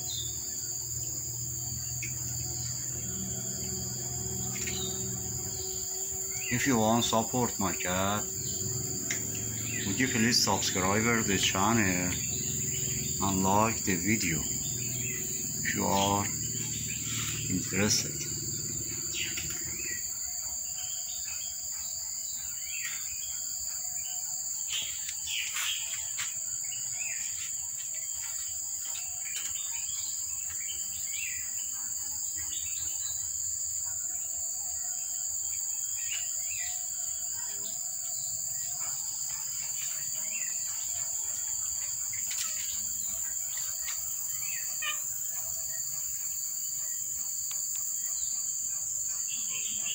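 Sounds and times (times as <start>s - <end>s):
birds chirping: 0.0s - 49.9s
high-pitched drone: 1.9s - 20.1s.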